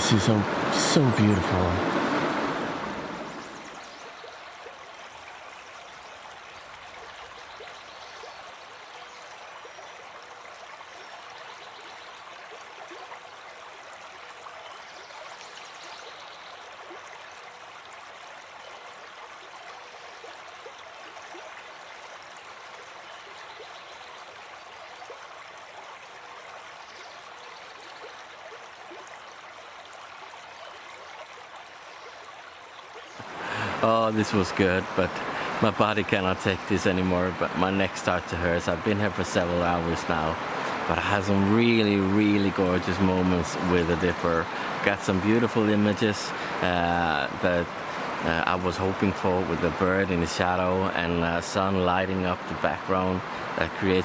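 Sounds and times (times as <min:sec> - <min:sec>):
river rushing over rocks: 0:00.0 - 0:03.9, 0:33.2 - 0:54.0.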